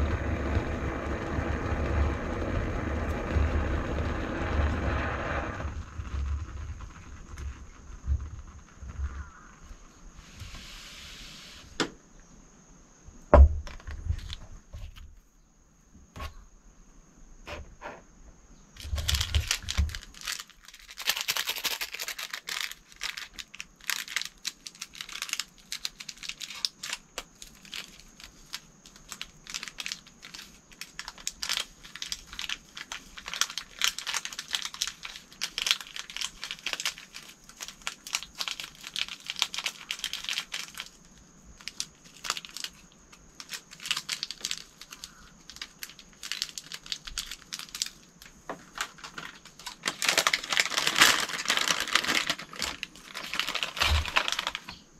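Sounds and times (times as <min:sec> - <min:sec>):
sachet tearing and crinkling: 0:18.8 - 0:54.9.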